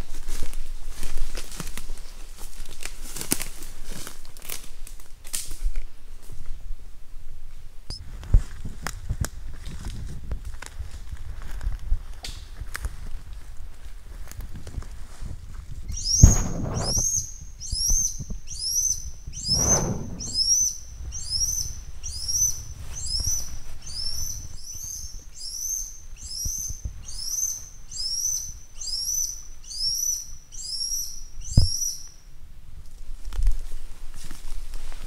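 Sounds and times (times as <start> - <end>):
brushing or rustling: 14.2 - 17.3, 19.4 - 20.7
bird high arched call: 15.9 - 32.2.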